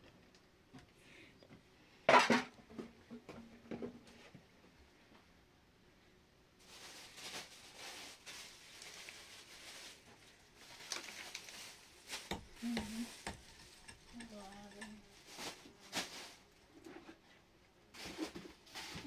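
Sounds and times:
scraping and rustling: 0:06.6 - 0:19.0.

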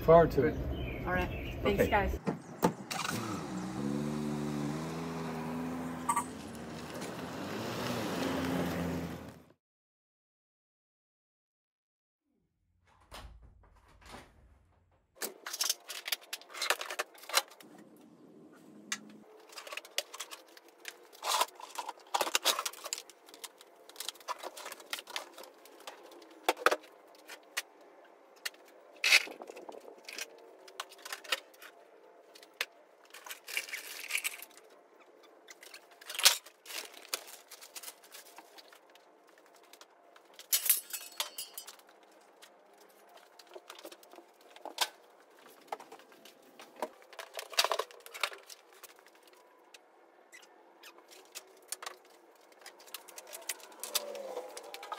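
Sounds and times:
tools clattering: 0:32.4 - 0:34.7, 0:39.6 - 0:42.2.

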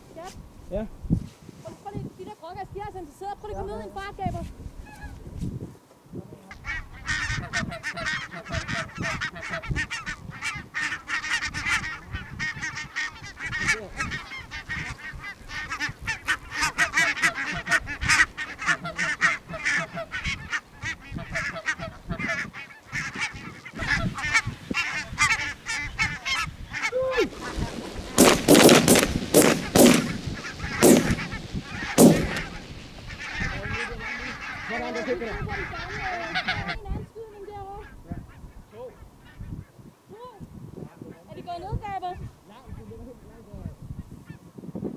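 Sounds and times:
flock of geese calling: 0:06.5 - 0:39.8
shotgun shots: 0:28.0 - 0:33.0.

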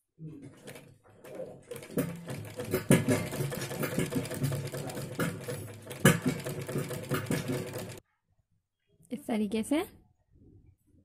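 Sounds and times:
sewing machine stitching: 0:00.5 - 0:08.0.

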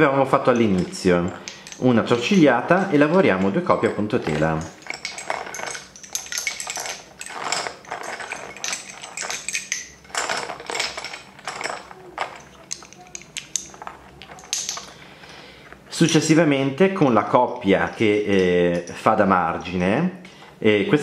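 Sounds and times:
lace bobbins clicking: 0:00.0 - 0:15.0.

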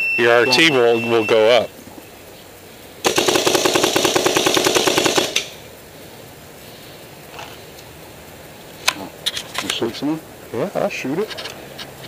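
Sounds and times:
paintball marker rapid fire: 0:03.0 - 0:05.6.

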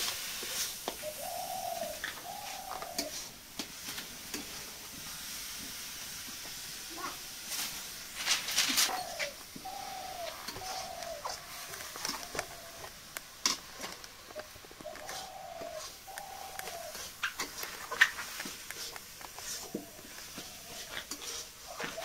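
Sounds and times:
doves cooing: 0:00.0 - 0:04.6, 0:08.2 - 0:22.0
food sizzling in a wok: 0:00.0 - 0:22.0
stirring scrapes and clicks: 0:10.4 - 0:22.0.

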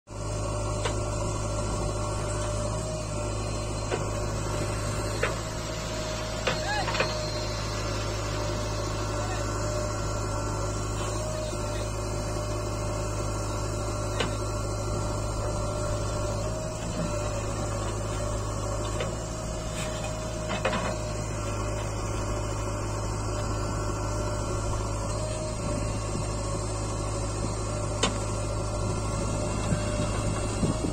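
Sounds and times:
backhoe digging soil: 0:00.1 - 0:30.9
diesel engine running: 0:00.1 - 0:30.9.

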